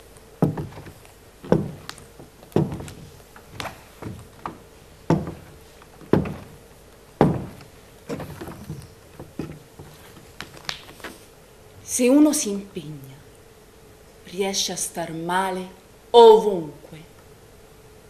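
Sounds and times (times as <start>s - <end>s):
footsteps on a stage floor: 0.4s - 11.3s.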